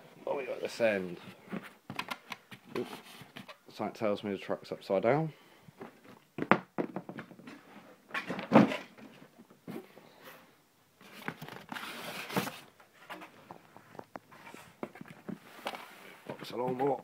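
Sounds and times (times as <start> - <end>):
cardboard rustling slide: 2.6 - 3.5, 9.8 - 13.2.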